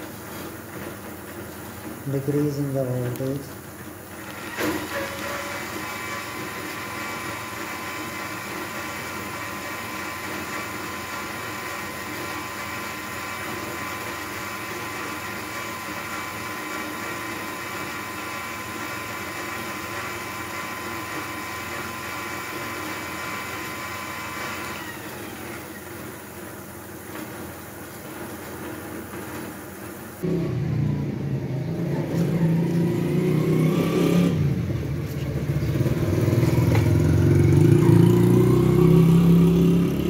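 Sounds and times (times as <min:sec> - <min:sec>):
electric motor whine: 0:04.2 - 0:27.6, 0:31.8 - 0:34.7, 0:35.7 - 0:40.0.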